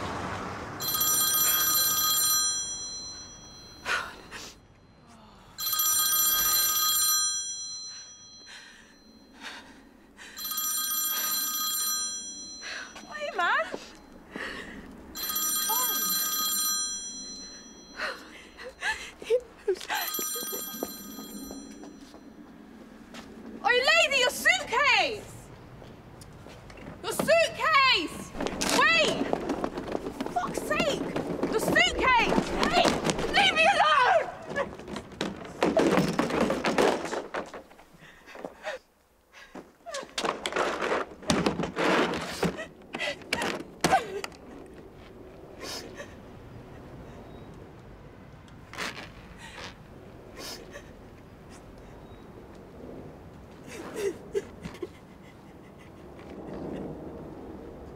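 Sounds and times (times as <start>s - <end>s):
mobile phone ringtone: 0.8s - 4.0s, 5.6s - 9.4s, 10.4s - 13.2s, 15.2s - 18.1s, 19.9s - 22.4s
woman's voice: 13.1s - 13.8s, 23.6s - 25.5s, 27.0s - 29.3s, 30.3s - 34.6s
hurried footsteps: 25.7s - 38.8s
suitcase clattering on pavement: 26.7s - 38.5s, 39.6s - 44.9s.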